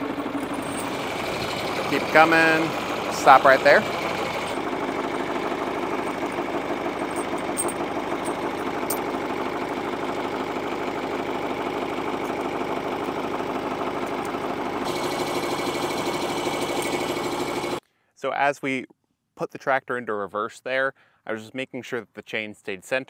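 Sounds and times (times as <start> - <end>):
metal chain links clinking: 0.0 - 2.4, 5.9 - 9.2, 16.7 - 17.1
diesel tractor engine idling: 0.0 - 17.8.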